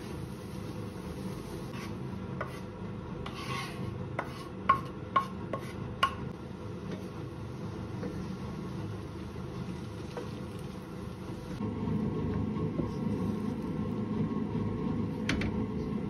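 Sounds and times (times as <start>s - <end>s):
gas burner rush: 0.0s - 2.7s, 6.3s - 16.0s
wooden spatula scraping pan: 1.3s - 5.8s.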